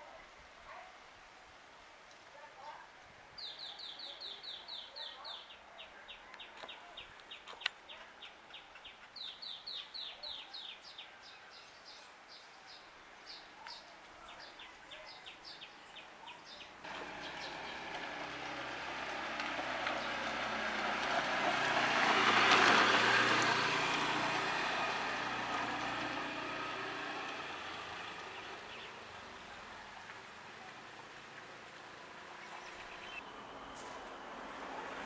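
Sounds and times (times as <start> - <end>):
birds chirping: 3.4 - 30.9, 31.6 - 33.9
scooter engine passing by: 16.8 - 35.0.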